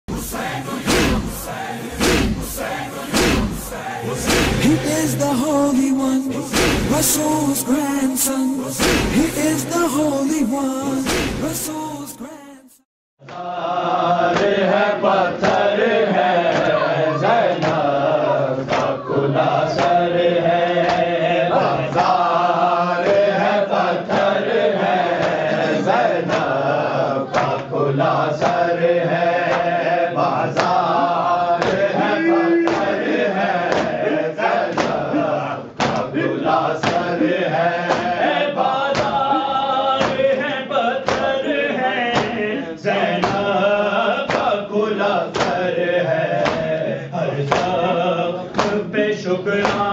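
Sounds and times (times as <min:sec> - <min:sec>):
rhythmic sharp strikes: 0:00.1 - 0:12.3
voices chanting a lament: 0:00.1 - 0:49.9.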